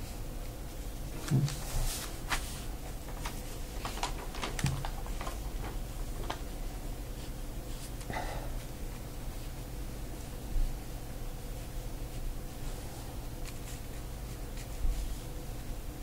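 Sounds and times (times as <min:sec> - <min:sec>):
paper rustling: 0:01.1 - 0:08.1, 0:13.4 - 0:15.2
brush scratching on paper: 0:11.5 - 0:15.3.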